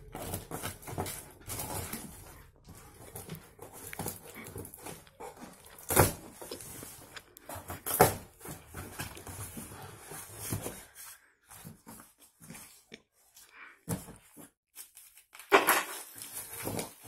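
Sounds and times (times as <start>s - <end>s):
cardboard ripping: 0.0s - 10.8s, 14.8s - 17.0s.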